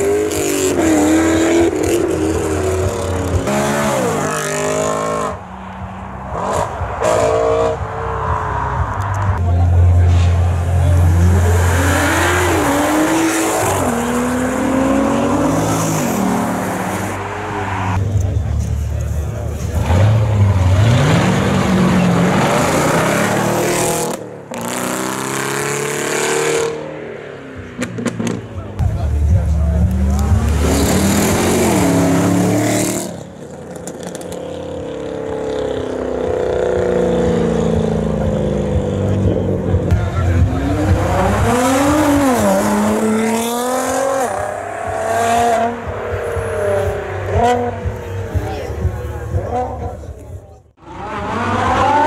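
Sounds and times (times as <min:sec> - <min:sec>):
car engine accelerating hard: 0:27.6 - 0:52.0.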